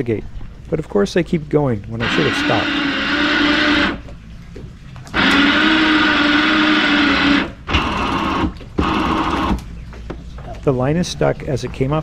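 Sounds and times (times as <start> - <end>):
electric winch motor whining: 2.0 - 4.1, 5.1 - 9.6.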